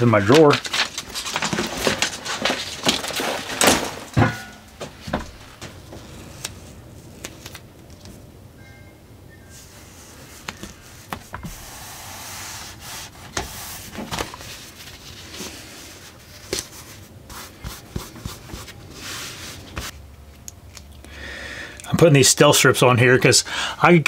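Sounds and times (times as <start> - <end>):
rustling and rubbing: 0.0 - 8.2, 9.5 - 20.0.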